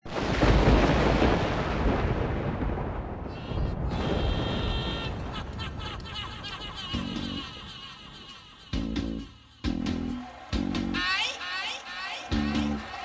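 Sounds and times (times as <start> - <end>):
deep rumbling boom: 0.1 - 5.6.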